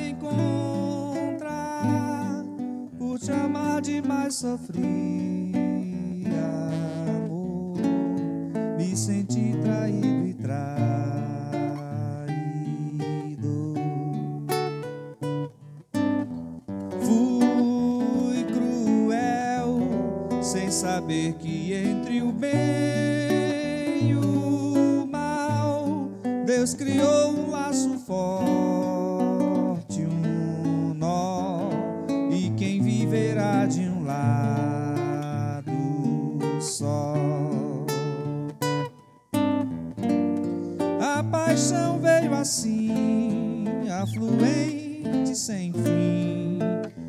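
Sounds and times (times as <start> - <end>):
man singing: 0.0 - 14.9, 16.9 - 39.0, 40.5 - 47.0
acoustic guitar playing: 0.0 - 47.0.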